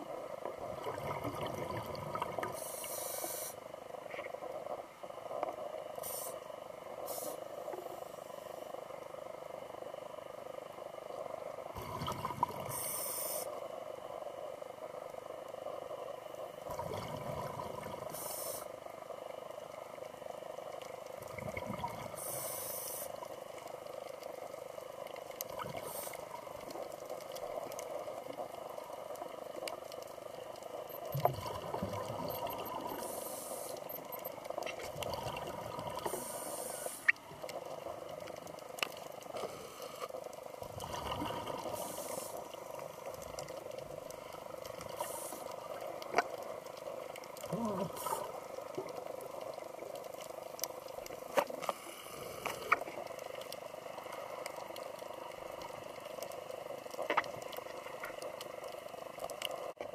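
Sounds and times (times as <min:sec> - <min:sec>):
muffled underwater hum: 0:00.0 - 0:59.9
exhaled air bubbling: 0:00.6 - 0:03.0, 0:11.7 - 0:13.4, 0:16.5 - 0:18.5, 0:21.0 - 0:22.8, 0:30.1 - 0:39.2, 0:40.4 - 0:51.3
regulator inhalation hiss: 0:02.5 - 0:03.7, 0:06.0 - 0:07.9, 0:12.7 - 0:13.6, 0:18.1 - 0:18.8, 0:22.1 - 0:23.2, 0:33.0 - 0:33.9, 0:36.0 - 0:37.1, 0:41.6 - 0:42.5.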